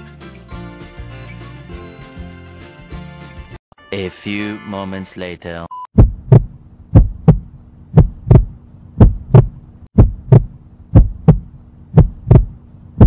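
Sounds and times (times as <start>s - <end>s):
heartbeat double thump: 6.0s - 12.6s
low steady hum: 6.0s - 13.0s.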